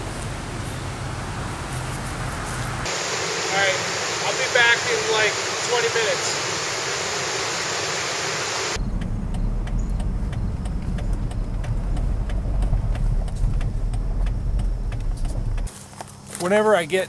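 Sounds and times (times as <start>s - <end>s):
vehicle driving rumble: 0.0s - 4.9s, 8.8s - 16.2s
steady hiss: 2.8s - 8.8s.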